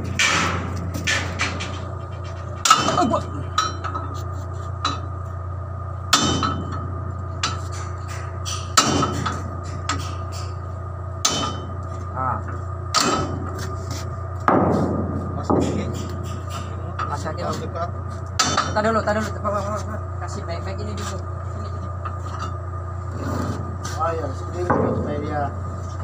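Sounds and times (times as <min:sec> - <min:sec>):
hammer striking steel: 0:00.0 - 0:01.8, 0:02.6 - 0:04.0, 0:06.1 - 0:06.8, 0:07.4 - 0:10.6, 0:11.2 - 0:11.8, 0:12.9 - 0:13.6, 0:14.5 - 0:17.2, 0:18.4 - 0:18.8
engine humming: 0:00.0 - 0:26.0.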